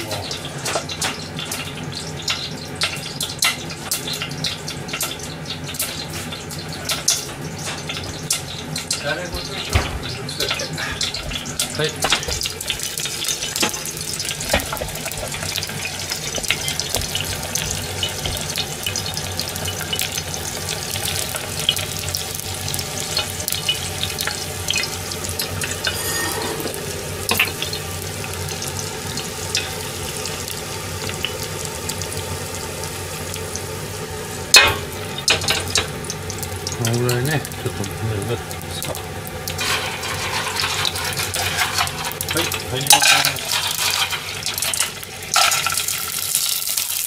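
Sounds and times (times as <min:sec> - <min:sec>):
garlic sizzling in oil: 0:00.0 - 0:47.0
metal clank: 0:25.7 - 0:27.6, 0:34.6 - 0:35.9.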